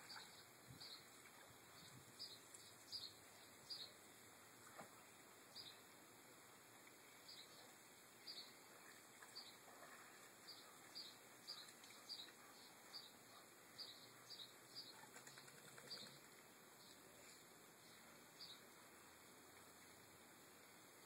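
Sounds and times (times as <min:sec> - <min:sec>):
faint bird chirps: 0:07.2 - 0:18.7.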